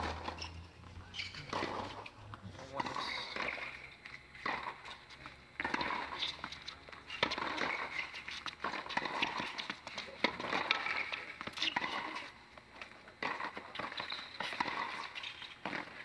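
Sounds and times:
tennis ball bouncing: 1.2s - 2.1s, 2.8s - 5.0s, 5.6s - 16.0s
tennis ball struck by rackets: 1.5s - 2.1s, 7.2s - 12.2s, 13.2s - 16.0s.

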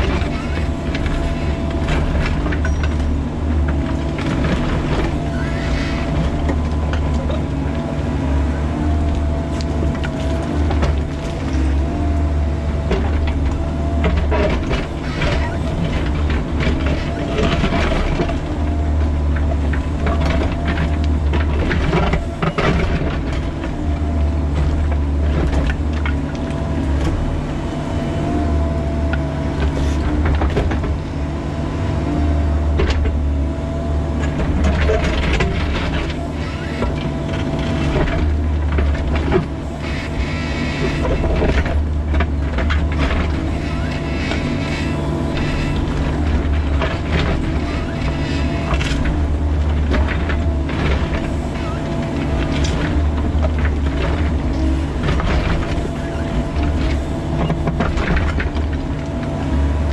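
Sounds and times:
excavator diesel engine drone: 0.0s - 59.9s.

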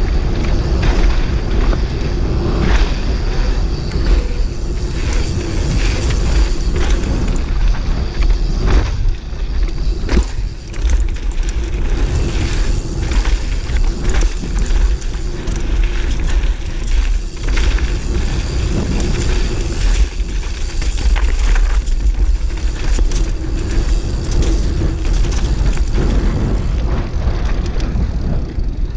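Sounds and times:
bike knocks and rattles: 0.0s - 28.9s
tyres rolling over gravel: 0.0s - 28.9s
wind buffeting microphone: 0.0s - 28.9s.

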